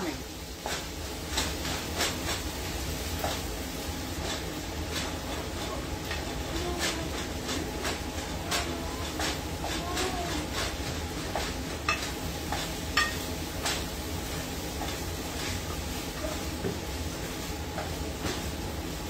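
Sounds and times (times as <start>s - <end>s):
meat sizzling in a metal pan: 0.0s - 19.0s
spatula scraping and tapping pan: 4.2s - 18.5s.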